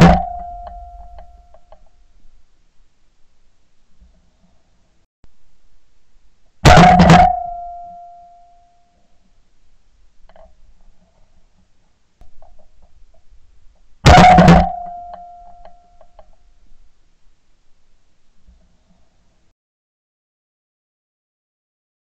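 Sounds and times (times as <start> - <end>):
ringing tone: 0.0 - 1.5, 7.2 - 8.9.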